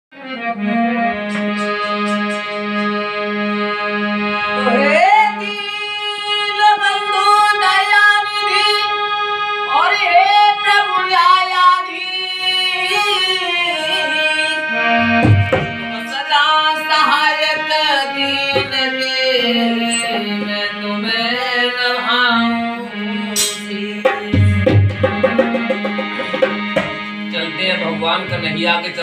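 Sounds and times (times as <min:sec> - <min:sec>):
harmonium chords: 0:00.1 - 0:29.0
man singing devotional song: 0:15.7 - 0:25.2.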